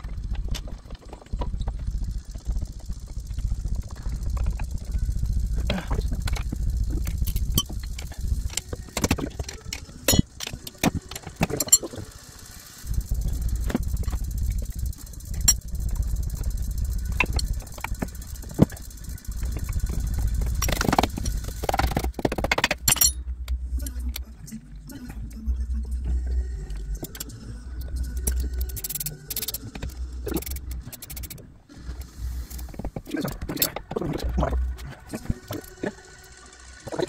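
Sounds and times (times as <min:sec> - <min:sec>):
low rumble: 0:00.0 - 0:10.2, 0:12.8 - 0:22.4, 0:23.1 - 0:30.9
metal tools clinking and knocking: 0:22.8 - 0:23.2.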